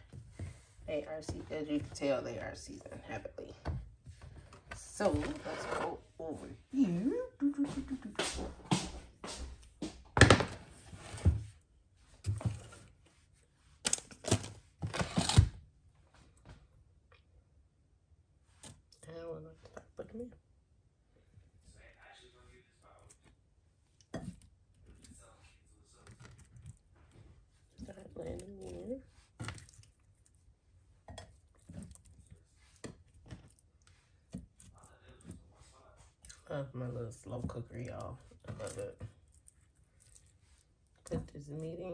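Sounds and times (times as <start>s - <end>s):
kitchen handling thuds and rustles: 8.4s - 11.6s.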